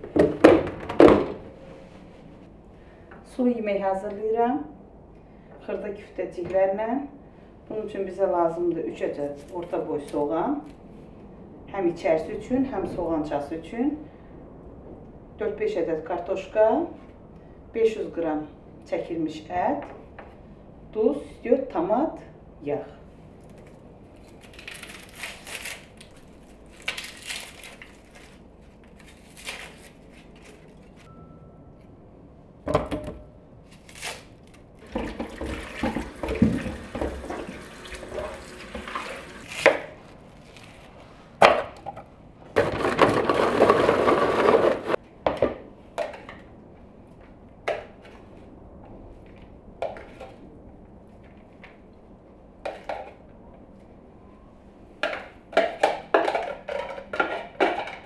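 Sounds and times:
tap water running: 34.8s - 39.5s
bowls and utensils clattering: 55.0s - 58.0s.

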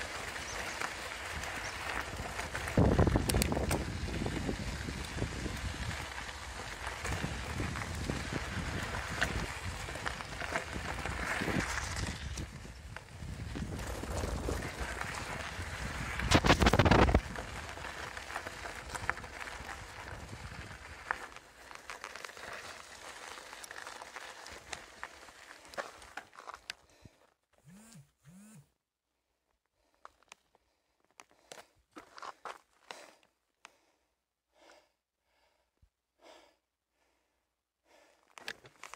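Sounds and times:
tyres rolling on gravel: 0.0s - 26.9s
bicycle clicks and rattles: 0.0s - 27.0s
wind buffeting microphone: 1.4s - 17.8s.

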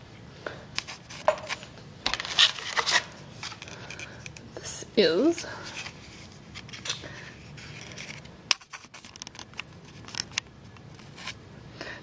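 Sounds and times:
cardboard card clicks and scrapes: 0.8s - 4.1s, 5.7s - 11.4s.

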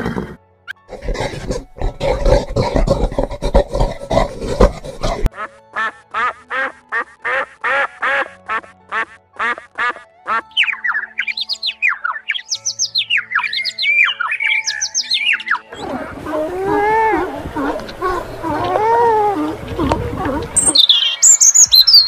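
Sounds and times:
noisy animal calls: 0.9s - 5.3s, 10.6s - 22.0s
blackbird whistling song: 10.5s - 15.7s, 20.6s - 22.0s.

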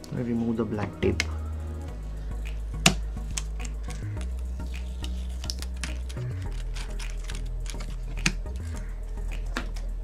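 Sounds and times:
background music: 0.0s - 10.0s
fingers clicking and tapping: 2.5s - 9.9s.

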